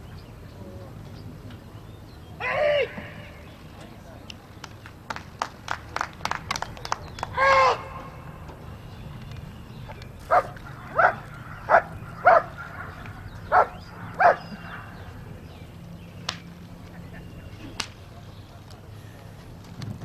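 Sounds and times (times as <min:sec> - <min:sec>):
dog barking: 0:10.3 - 0:15.1.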